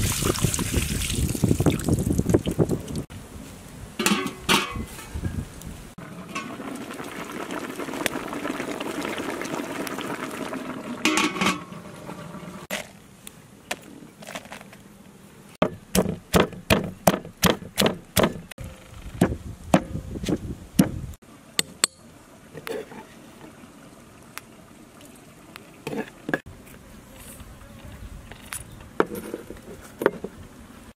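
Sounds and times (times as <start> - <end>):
pot bubbling under lid: 6.0 - 12.7
pestle pounding in mortar: 15.6 - 18.5.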